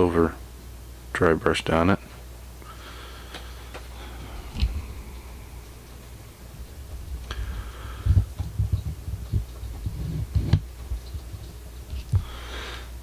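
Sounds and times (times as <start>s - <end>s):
steady low hum: 0.0s - 13.0s
handling thumps and knocks: 6.8s - 12.3s.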